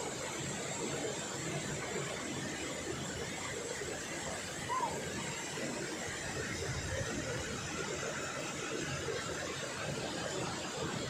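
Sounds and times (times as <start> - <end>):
waterfall rushing into pool: 0.8 - 8.8.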